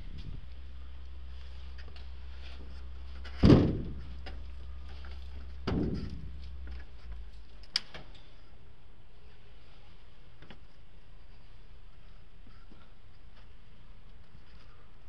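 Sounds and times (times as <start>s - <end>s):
heavy thuds on metal: 3.3s - 4.4s, 5.6s - 6.7s.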